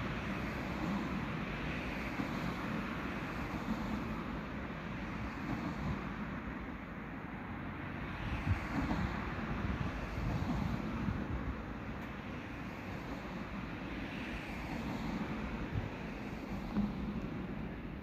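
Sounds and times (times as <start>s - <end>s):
distant road traffic rumble: 0.0s - 18.0s
wind buffeting microphone: 8.1s - 12.0s, 14.8s - 18.0s.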